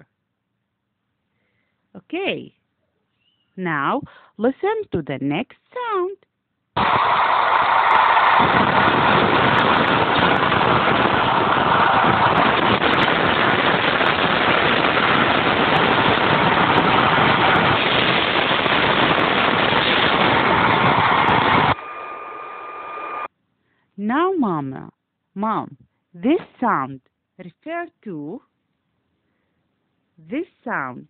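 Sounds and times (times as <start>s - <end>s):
bus engine running: 15.0s - 23.3s.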